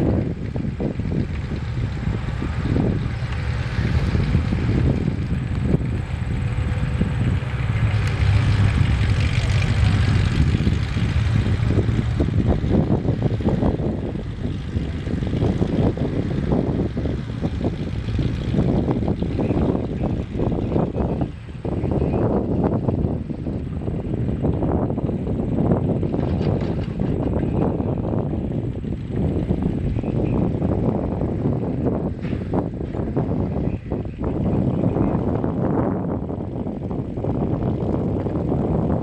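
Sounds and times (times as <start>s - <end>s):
excavator diesel engine running: 0.0s - 20.1s
wind buffeting microphone: 0.0s - 39.0s.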